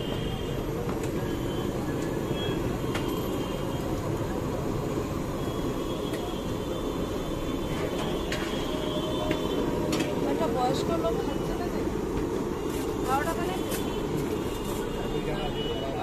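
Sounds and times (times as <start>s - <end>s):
roadside bustle: 0.0s - 16.0s
street traffic rumble: 0.0s - 16.0s.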